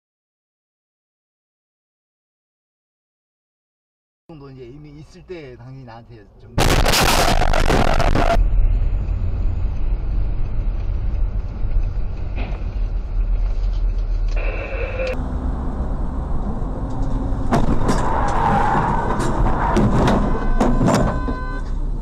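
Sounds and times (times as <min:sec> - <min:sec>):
road noise: 0:04.3 - 0:22.0
car engine rumble: 0:06.2 - 0:22.0
brief high tone: 0:20.4 - 0:21.7.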